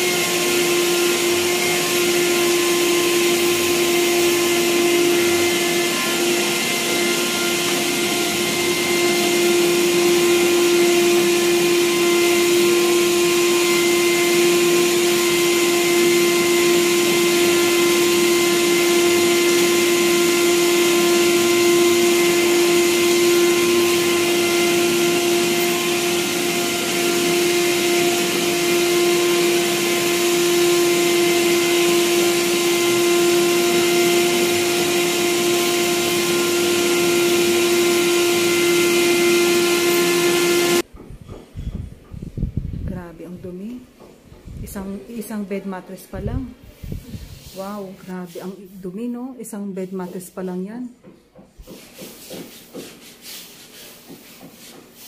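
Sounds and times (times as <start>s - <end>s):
vacuum cleaner motor whine: 0.0s - 40.9s.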